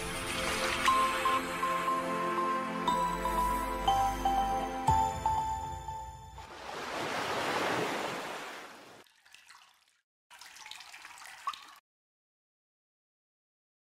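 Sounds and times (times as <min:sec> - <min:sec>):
background music: 0:00.0 - 0:06.5
rushing splash-like whoosh: 0:06.4 - 0:09.0.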